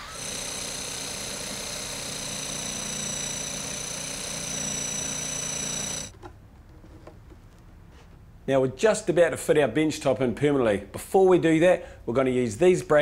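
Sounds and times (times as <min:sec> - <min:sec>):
electric jigsaw cutting: 0:00.0 - 0:06.1.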